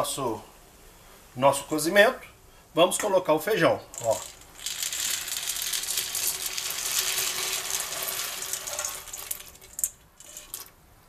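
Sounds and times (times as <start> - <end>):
dried beans pouring and rattling: 3.9 - 10.7.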